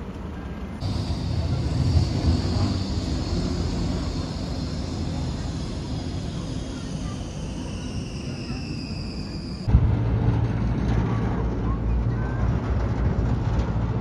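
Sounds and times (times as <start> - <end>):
tram electric whine: 0.0 - 14.0
wheels rumbling on rail: 0.0 - 14.0.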